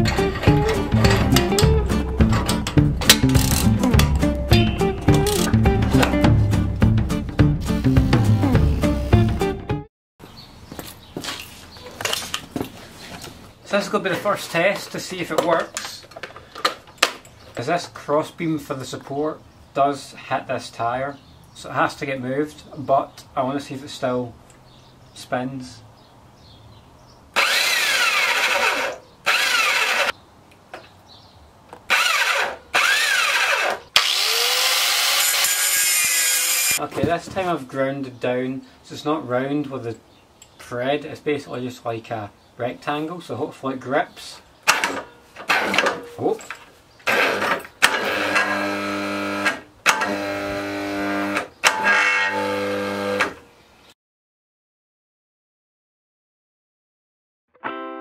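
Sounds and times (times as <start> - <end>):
electric drill whine: 27.4 - 30.1, 31.9 - 36.8, 47.1 - 53.4.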